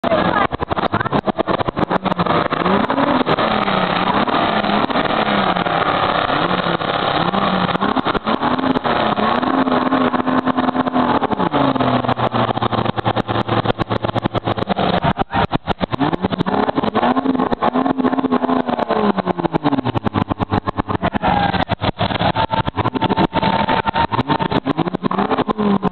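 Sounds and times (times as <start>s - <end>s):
sharp crackles: 0.0s - 25.9s
truck engine revving: 0.0s - 25.9s.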